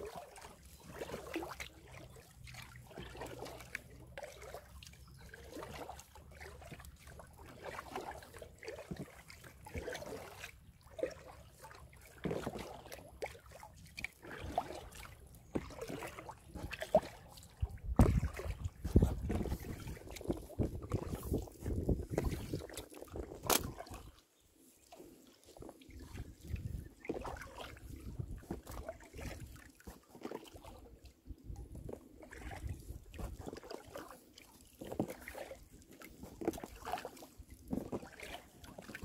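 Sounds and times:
paddle swishes: 0:00.0 - 0:30.9, 0:31.7 - 0:39.0
water sloshing around kayak: 0:00.0 - 0:39.0
low thump: 0:18.0 - 0:18.2.

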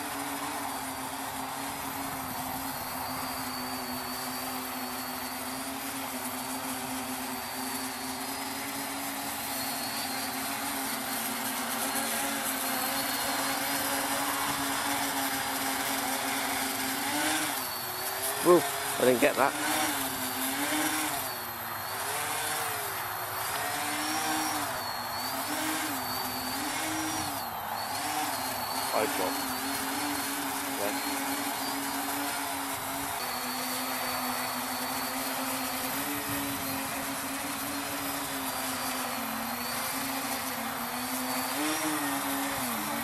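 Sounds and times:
quadcopter motors humming: 0:00.0 - 0:43.0.

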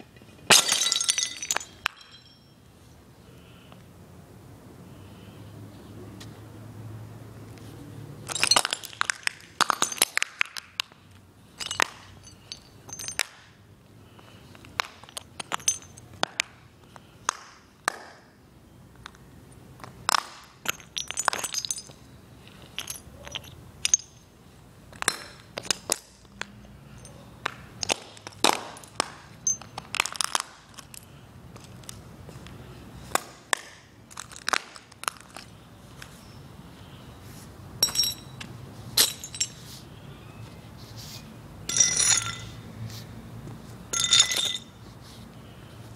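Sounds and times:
ceramic shards crunching underfoot: 0:00.3 - 0:02.6, 0:08.2 - 0:10.9, 0:11.5 - 0:13.6, 0:14.8 - 0:16.4, 0:20.1 - 0:24.3, 0:24.9 - 0:27.2, 0:27.8 - 0:31.9, 0:33.1 - 0:35.6, 0:37.8 - 0:39.7, 0:41.7 - 0:42.6, 0:43.9 - 0:44.8.

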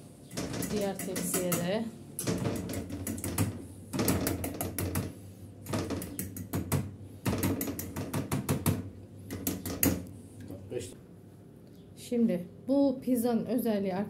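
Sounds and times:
fork tines tapping on metal tray: 0:00.3 - 0:05.0, 0:05.9 - 0:08.7.

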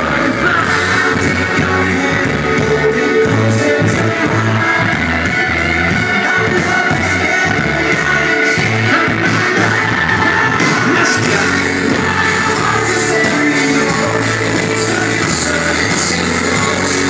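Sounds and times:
live rock band playing: 0:00.0 - 0:17.0
person singing into microphone: 0:00.0 - 0:17.0.

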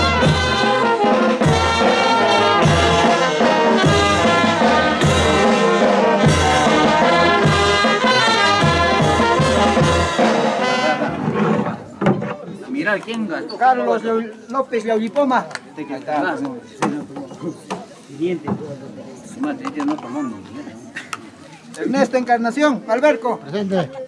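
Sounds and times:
bass drum: 0:00.0 - 0:10.5
brass band playing: 0:00.0 - 0:12.5.

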